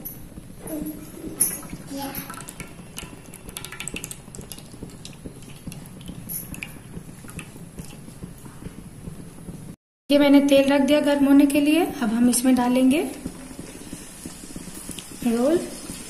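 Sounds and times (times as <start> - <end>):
small clinks and taps: 0.0 - 8.8.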